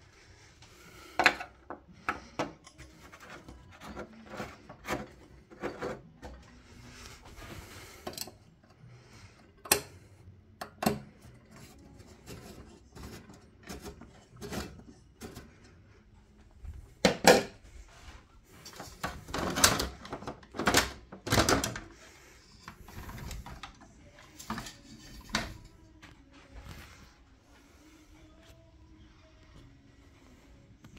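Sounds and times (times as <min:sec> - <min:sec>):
metal parts clicking and knocking: 0:08.0 - 0:08.5, 0:18.6 - 0:25.7.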